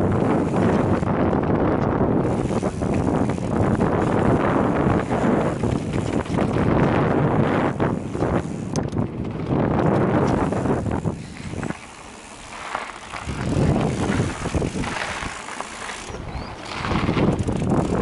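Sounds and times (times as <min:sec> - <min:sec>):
bike clicks and rattles: 0:00.0 - 0:18.0
tyres rolling on dirt and gravel: 0:00.0 - 0:18.0
wind buffeting microphone: 0:00.0 - 0:18.0.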